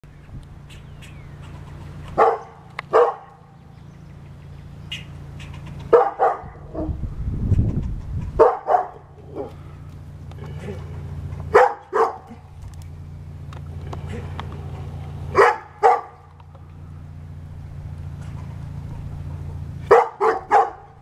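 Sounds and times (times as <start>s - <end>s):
dog barking: 2.2s - 3.5s, 5.9s - 7.0s, 8.4s - 9.6s, 11.5s - 12.5s, 15.3s - 16.2s, 19.9s - 21.0s.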